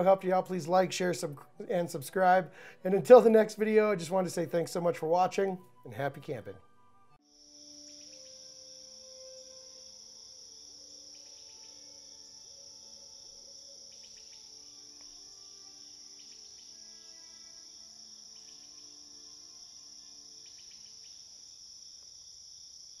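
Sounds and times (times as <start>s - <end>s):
soft sustained musical notes: 0.0s - 21.4s
crickets chirping: 7.2s - 23.0s.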